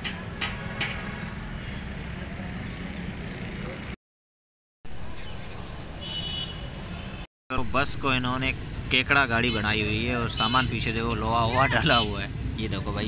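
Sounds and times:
low rumble of street traffic: 0:00.0 - 0:04.0, 0:04.9 - 0:13.0.

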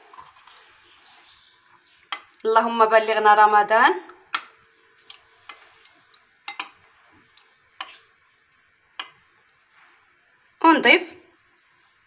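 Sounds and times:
spoon clinking against glass bowl: 0:06.5 - 0:06.8.

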